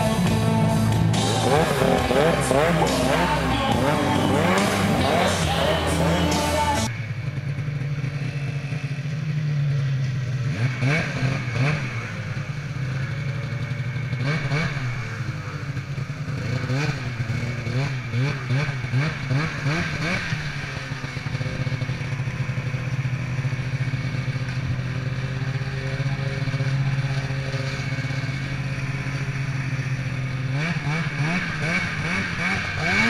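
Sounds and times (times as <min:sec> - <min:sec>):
snowmobile engine: 0:00.0 - 0:33.0.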